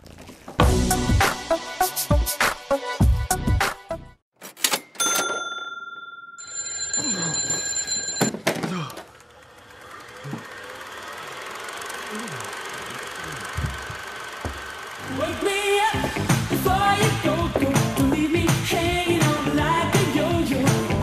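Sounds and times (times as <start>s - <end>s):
bell-like chime rings: 4.7s - 8.4s.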